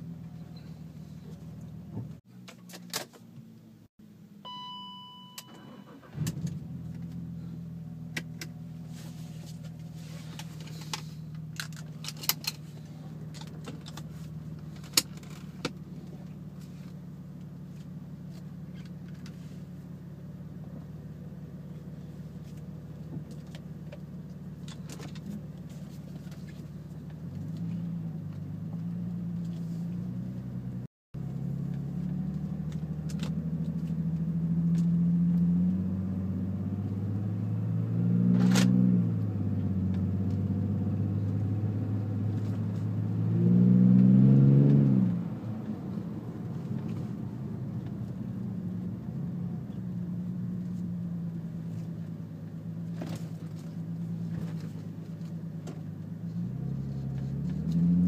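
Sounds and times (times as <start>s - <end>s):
car engine idling: 5.4s - 34.9s.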